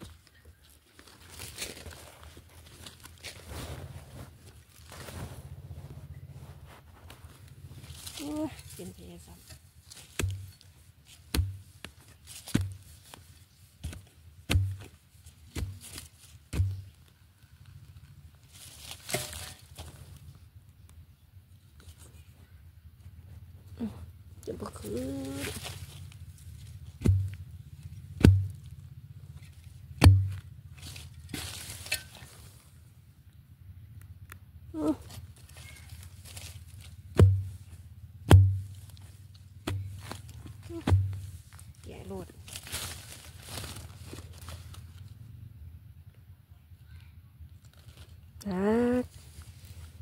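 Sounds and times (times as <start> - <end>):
scraping of soil and roots: 0.0 - 20.2, 23.8 - 32.8, 34.8 - 45.1
spade striking soil: 9.5 - 12.9, 13.8 - 17.0, 18.8 - 20.0, 26.7 - 28.6, 29.4 - 32.6, 35.7 - 41.6
spade thudding into soil: 19.0 - 19.8, 38.3 - 38.9, 39.6 - 41.3.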